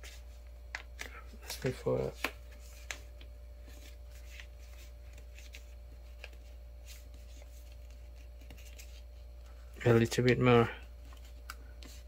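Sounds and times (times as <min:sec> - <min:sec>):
paper crinkling while folded: 0:00.0 - 0:09.2
faint steady hum: 0:00.0 - 0:12.0.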